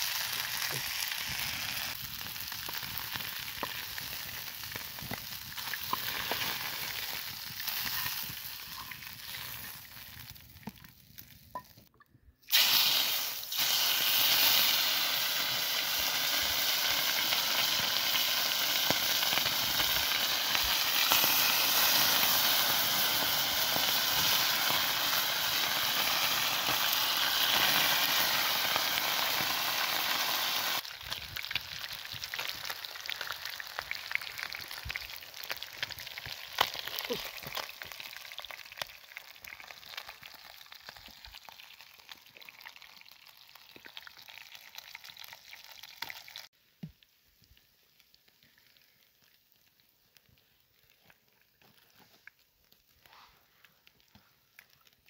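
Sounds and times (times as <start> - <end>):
fish sizzling in oil: 0.0 - 11.6, 12.5 - 53.2
sharp pops and crackles: 0.0 - 29.9, 30.8 - 45.1, 45.8 - 55.0.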